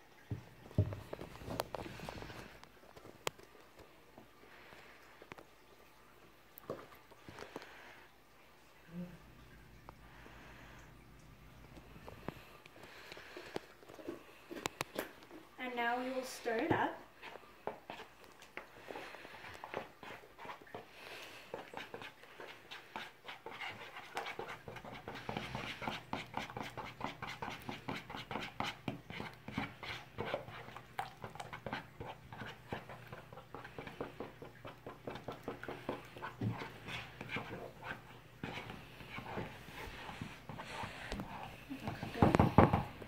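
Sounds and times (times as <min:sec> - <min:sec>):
spatula scraping plastic bowl: 0:17.2 - 0:20.9, 0:21.5 - 0:43.0.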